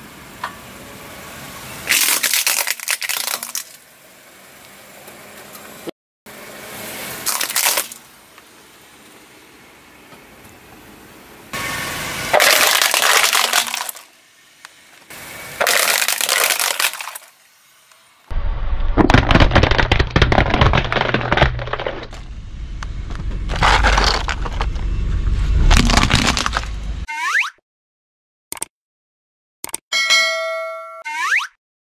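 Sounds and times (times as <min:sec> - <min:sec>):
plastic toy parts cracking under tire: 0:01.9 - 0:03.8, 0:12.4 - 0:14.0, 0:15.6 - 0:17.3, 0:19.0 - 0:22.2, 0:23.5 - 0:24.8, 0:25.7 - 0:26.8
car low rumble: 0:18.3 - 0:27.1.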